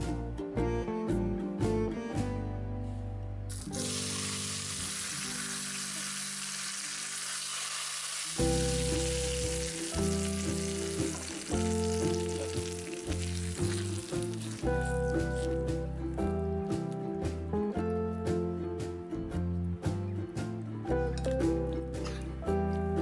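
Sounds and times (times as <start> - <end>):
background music: 0.0 - 23.0
hot oil sizzling: 3.5 - 15.7.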